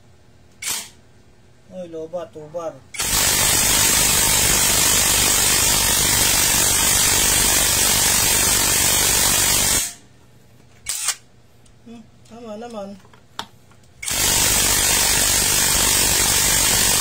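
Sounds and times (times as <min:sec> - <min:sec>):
impact wrench running: 0:03.0 - 0:10.0, 0:14.0 - 0:17.0.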